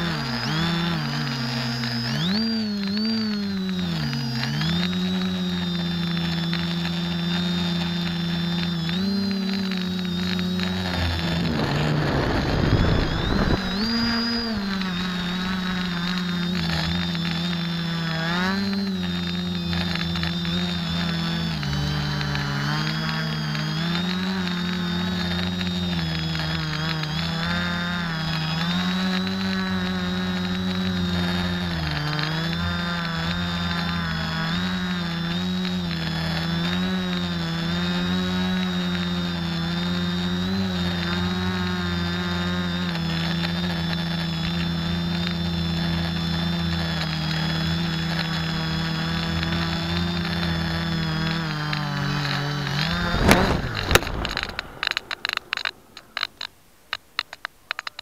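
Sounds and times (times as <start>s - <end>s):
drone motors buzzing: 0.0s - 58.0s
rush of noise: 11.0s - 16.3s, 52.6s - 56.5s.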